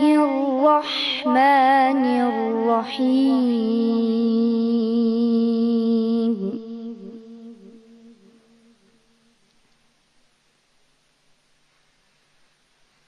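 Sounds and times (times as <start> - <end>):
boy reciting melodically: 0.0 - 8.4
echo of voice: 0.0 - 9.3.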